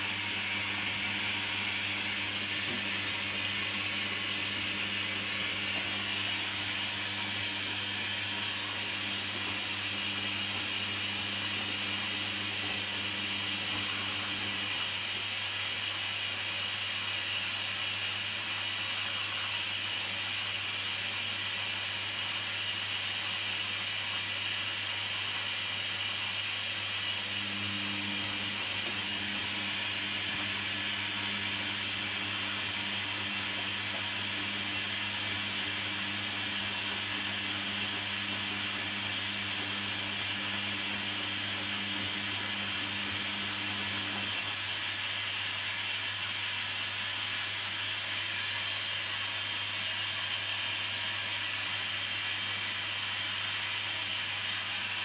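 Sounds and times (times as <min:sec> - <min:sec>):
low motor hum: 0:00.0 - 0:14.8, 0:27.3 - 0:44.5.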